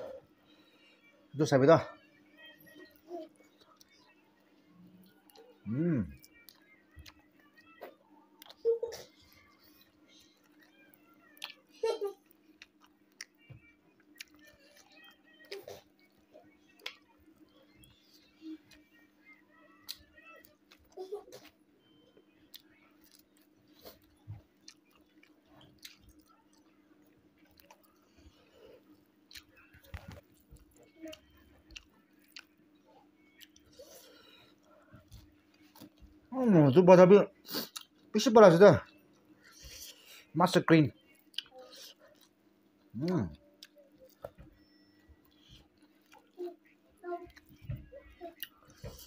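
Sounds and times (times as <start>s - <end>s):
chewing with wet smacks: 10.4s - 19.0s, 22.4s - 28.6s, 29.2s - 36.2s, 37.5s - 38.1s, 41.0s - 49.0s
food squishing by hand: 22.5s - 36.3s.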